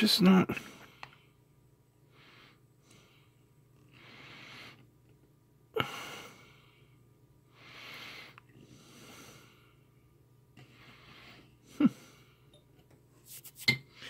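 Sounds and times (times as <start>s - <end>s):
man breathing heavily through nose: 2.1s - 4.9s, 5.7s - 10.0s, 10.6s - 12.5s.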